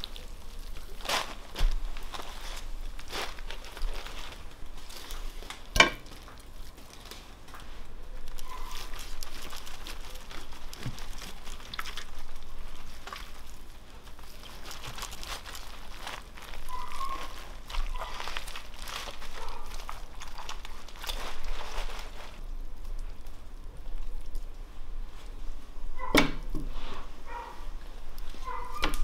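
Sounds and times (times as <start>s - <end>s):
knife crunching through crisp crust: 0.0s - 6.2s, 8.3s - 22.4s
baking paper crinkling: 0.0s - 29.0s.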